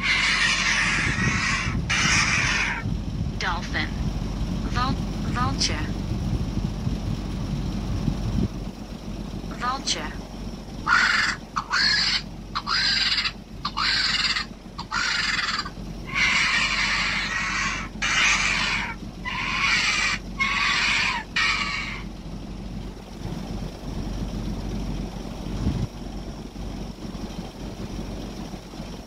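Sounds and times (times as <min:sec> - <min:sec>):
raspy vulture screeches from speaker: 0:00.0 - 0:02.8, 0:10.9 - 0:22.1.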